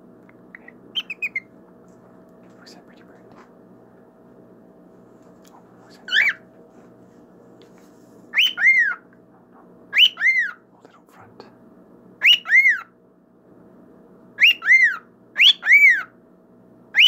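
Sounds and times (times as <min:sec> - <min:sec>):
faint steady hum: 0:00.0 - 0:17.0
cockatiel whistling: 0:01.0 - 0:01.5, 0:08.3 - 0:09.0, 0:09.9 - 0:10.6, 0:12.2 - 0:12.9, 0:14.4 - 0:16.1.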